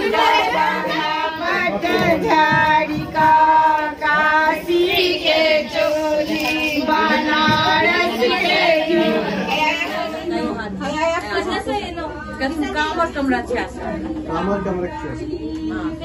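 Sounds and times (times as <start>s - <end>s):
women singing: 0.0s - 13.5s, 15.2s - 16.0s.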